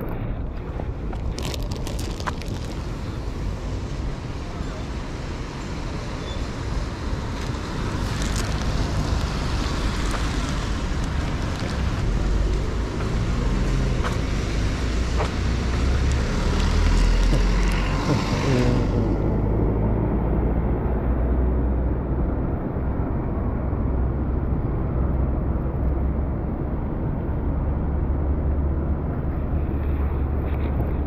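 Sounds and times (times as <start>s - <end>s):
tyres hissing on wet road: 2.8s - 19.0s
passing car engines: 2.8s - 31.0s.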